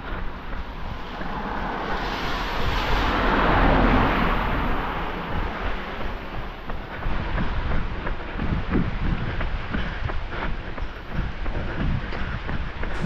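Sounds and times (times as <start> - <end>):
tyres hissing on wet road: 0.0 - 7.3.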